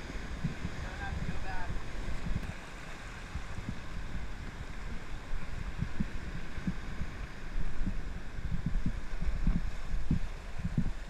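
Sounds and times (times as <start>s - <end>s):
surf washing around rocks: 0.0s - 11.0s
low thumps on microphone: 2.2s - 2.6s, 5.7s - 11.0s.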